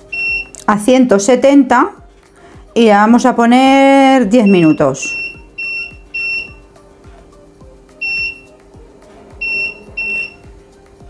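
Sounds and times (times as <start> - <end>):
short high beeps: 0.1 - 0.6, 4.4 - 6.6, 8.0 - 8.5, 9.4 - 10.4.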